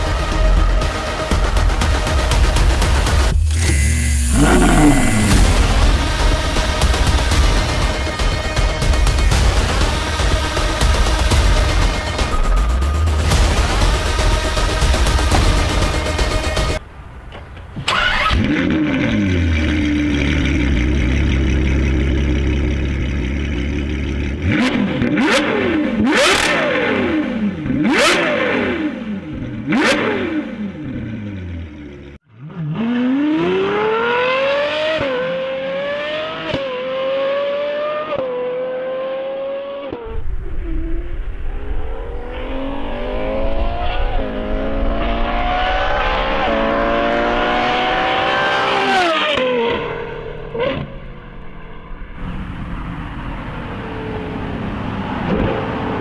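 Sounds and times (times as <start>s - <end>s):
car engine revving: 0.0s - 16.8s, 17.9s - 56.0s
car accelerating hard: 3.4s - 6.9s, 17.9s - 31.0s, 32.3s - 51.1s.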